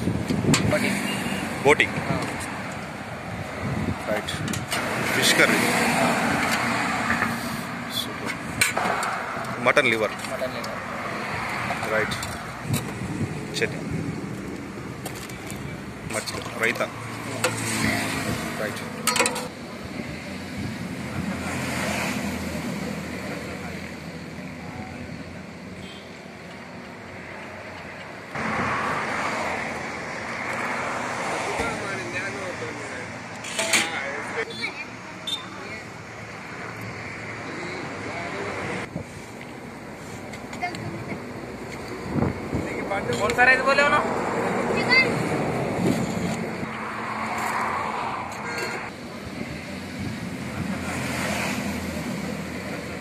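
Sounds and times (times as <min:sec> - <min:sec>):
wind on microphone: 0:00.0 - 0:00.8, 0:03.1 - 0:05.1, 0:12.4 - 0:14.6, 0:42.0 - 0:42.8
roadside traffic: 0:00.0 - 0:53.0.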